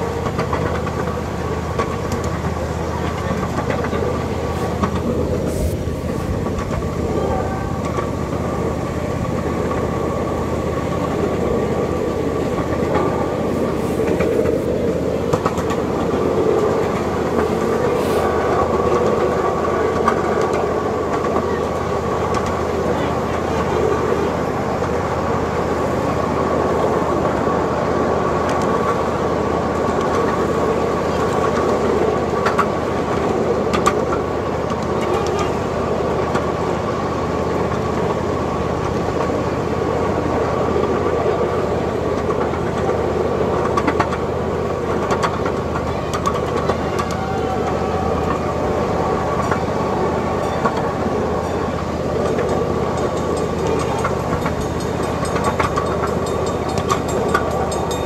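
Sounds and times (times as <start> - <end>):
constant whine: 0.0 - 58.0
miniature train wheels rumbling: 0.0 - 58.0
rail clicks: 0.0 - 58.0.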